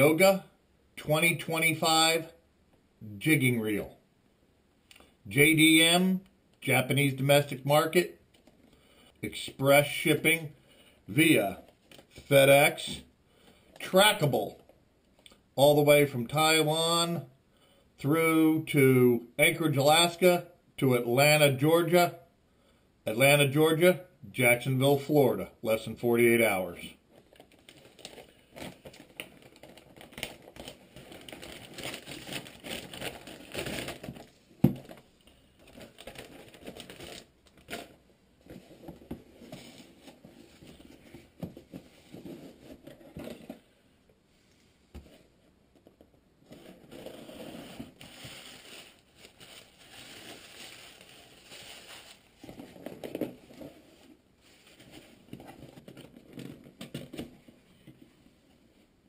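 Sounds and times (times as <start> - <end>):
plastic mailer crinkling: 27.1 - 43.6, 46.5 - 57.2.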